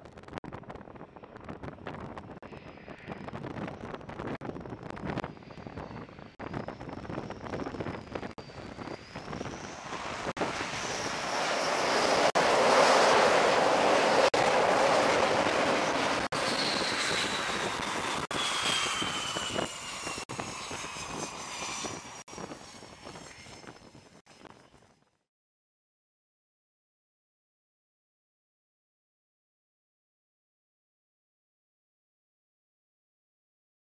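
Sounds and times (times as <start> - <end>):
fighter jet engines roaring: 0.8 - 24.0
jet engine whine falling in pitch: 2.5 - 24.6.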